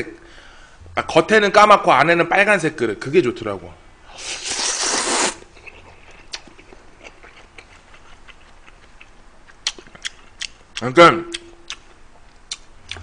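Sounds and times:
man slurping noodles: 4.2s - 5.5s
chewing with mouth clicks: 5.5s - 13.0s.

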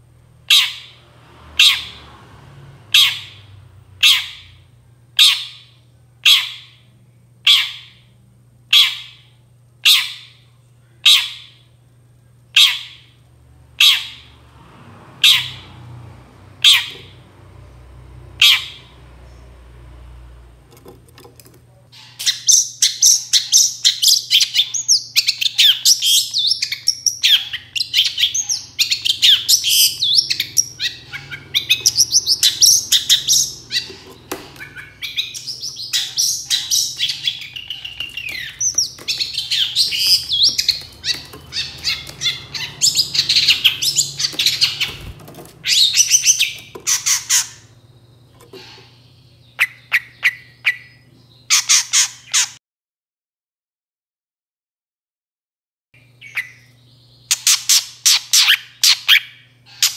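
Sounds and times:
bird singing chattering notes: 22.0s - 52.5s.

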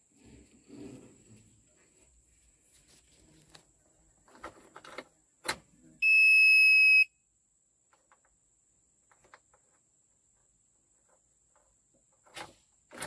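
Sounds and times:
warning buzzer beep: 6.0s - 7.1s.

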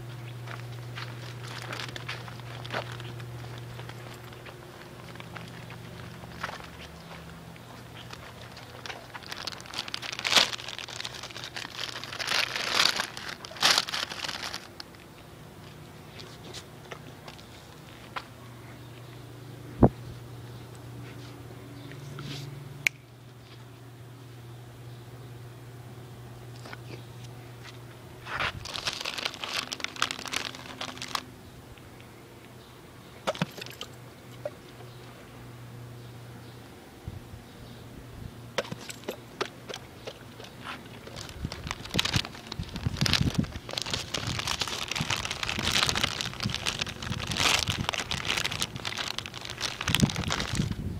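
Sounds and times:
crinkling and crackling: 0.0s - 18.3s, 26.5s - 31.3s, 38.6s - 50.9s.

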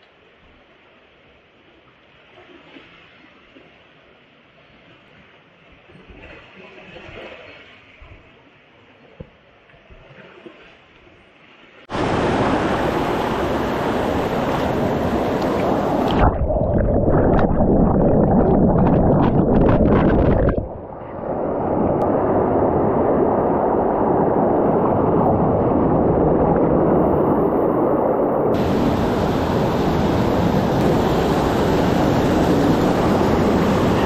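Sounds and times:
water splashing: 9.8s - 21.2s, 28.6s - 34.0s
rushing stream water: 10.3s - 21.3s, 28.5s - 34.0s.

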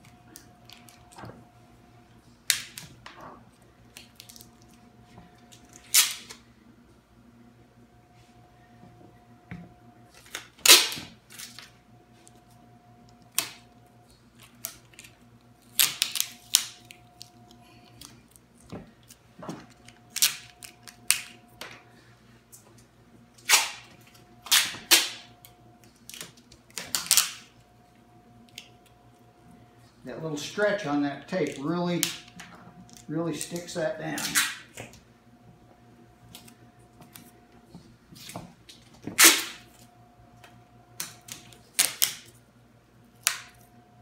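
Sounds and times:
packing tape ripping off roll: 5.6s - 6.4s, 10.1s - 11.7s, 14.4s - 17.3s, 23.4s - 25.3s, 25.9s - 27.5s, 33.3s - 34.8s, 39.1s - 39.8s, 41.0s - 42.3s.

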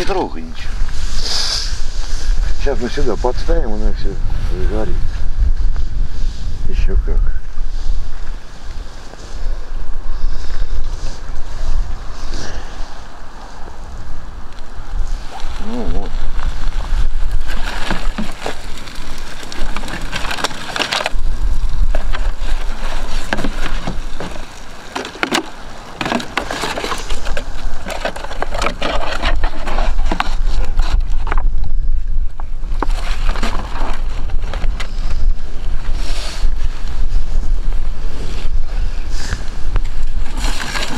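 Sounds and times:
low wind rumble on microphone: 0.0s - 40.9s
dry sticks snapping: 17.5s - 30.7s.

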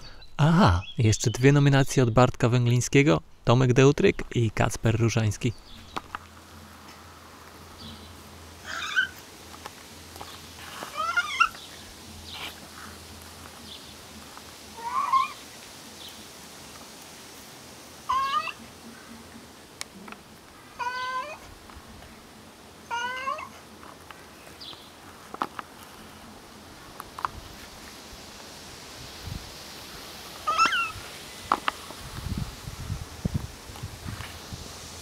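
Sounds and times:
cat meowing: 10.9s - 11.6s, 18.1s - 18.6s, 20.8s - 21.4s, 22.9s - 23.5s, 30.4s - 31.0s.

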